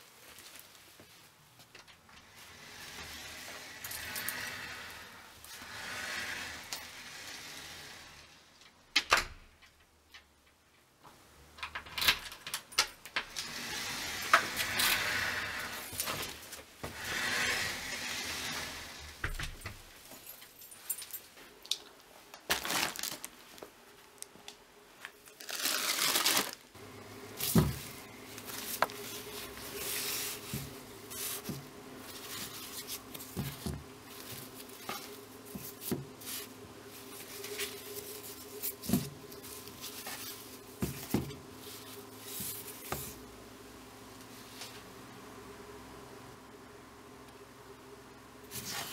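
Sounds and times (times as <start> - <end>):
faint steady hum: 0.0 - 48.9
shopping bag rustling: 22.3 - 24.3, 25.1 - 43.2.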